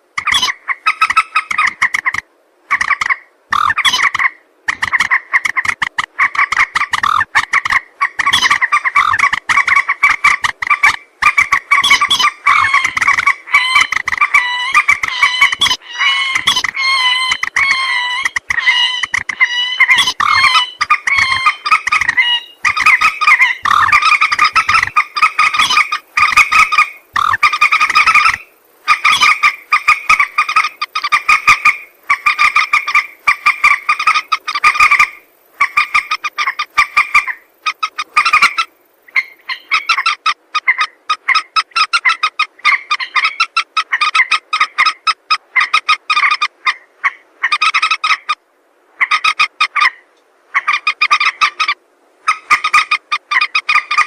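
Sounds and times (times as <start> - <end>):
moorhen calling: 0.0 - 48.4, 49.0 - 54.0.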